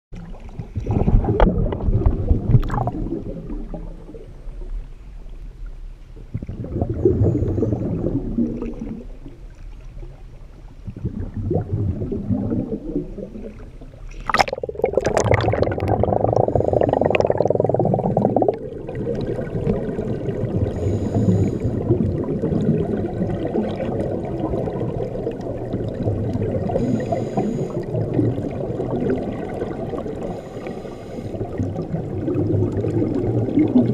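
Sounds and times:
scuba exhaust bubbles: 0.2 - 5.6, 6.2 - 33.9
muffled underwater rush: 0.2 - 33.9
water sloshing over camera: 0.2 - 33.9
water splash: 10.9 - 20.7.

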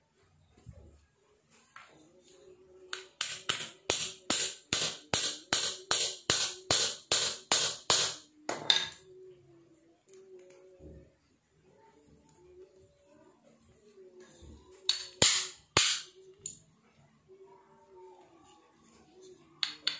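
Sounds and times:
hammer tapping on metal: 2.9 - 9.0.

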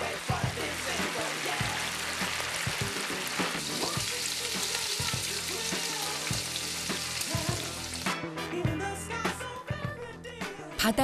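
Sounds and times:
food sizzling in hot oil: 0.0 - 8.2.

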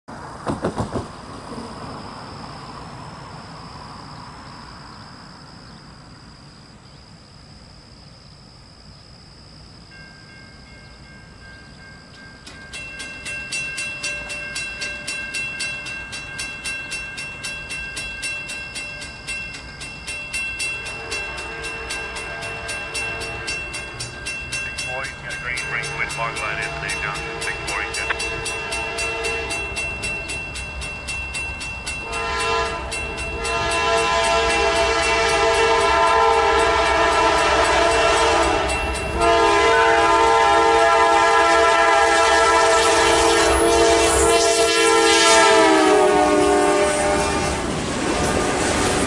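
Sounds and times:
crossing bell clanging: 9.8 - 39.5
distant locomotive horn: 20.8 - 24.1, 24.9 - 29.9, 32.0 - 48.7.

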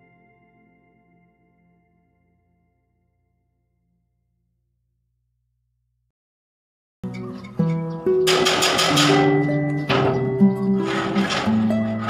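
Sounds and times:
plucked string music: 7.0 - 12.0.

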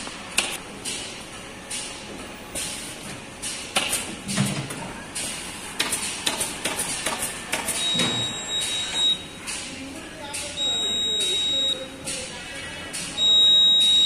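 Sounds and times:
knocks and clicks of factory work: 0.0 - 14.0
steady noisy background: 0.0 - 14.0
high-pitched electronic buzzer tone: 7.8 - 9.3, 13.2 - 14.0.

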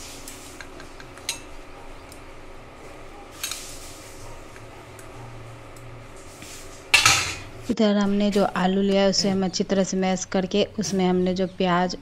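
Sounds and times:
metal tongs clinking against bowl: 0.7 - 1.5.

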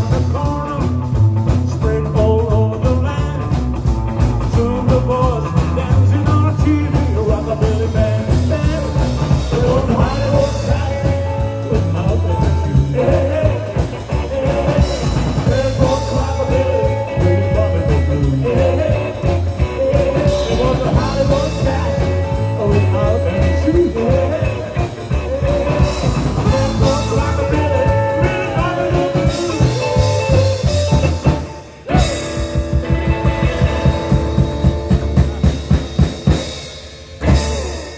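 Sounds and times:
drums beating: 0.0 - 37.9
rock and roll band playing: 0.0 - 37.9.

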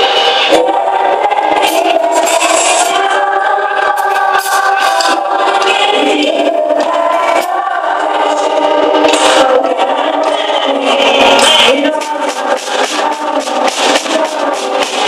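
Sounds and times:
voices singing: 0.0 - 15.0
child drumming on drum kit: 11.9 - 15.0.

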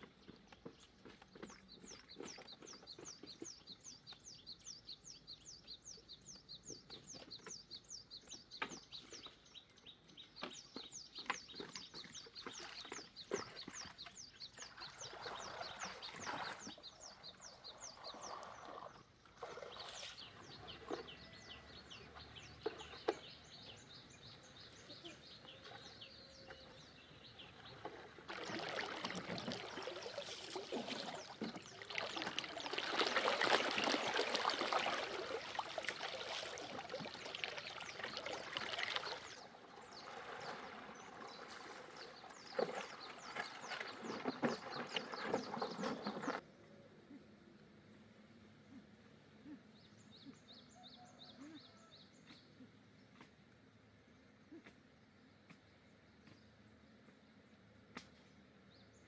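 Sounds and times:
birds chirping: 0.0 - 47.2
river water swishing and splashing: 10.5 - 24.2, 26.6 - 46.4.

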